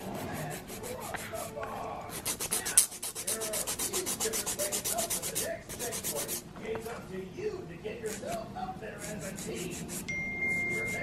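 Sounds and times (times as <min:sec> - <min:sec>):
nail file filing fingernails: 0:02.1 - 0:06.4, 0:09.0 - 0:11.0.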